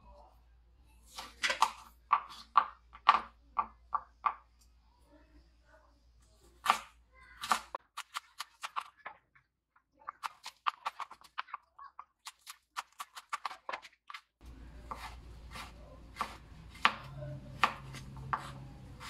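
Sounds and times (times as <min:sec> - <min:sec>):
knife chopping on wooden board: 0:14.8 - 0:19.0.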